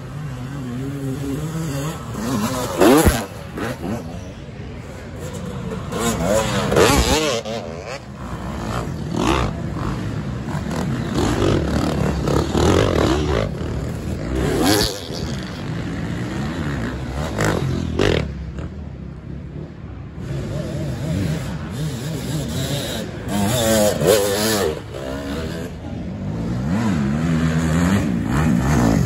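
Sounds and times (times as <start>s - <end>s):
dirt bike engines revving: 0.0s - 29.0s.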